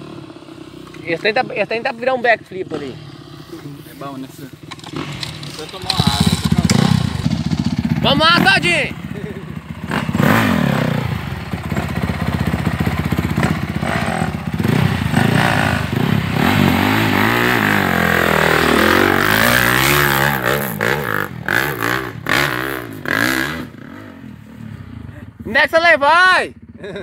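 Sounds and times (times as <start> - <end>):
dirt bike engine revving: 0.0 - 27.0
sharp clattering knocks: 4.6 - 7.3.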